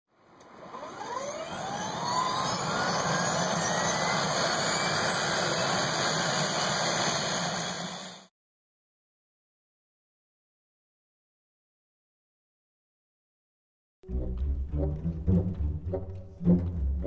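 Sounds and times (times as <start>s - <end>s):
drone motors whining: 0.6s - 8.2s.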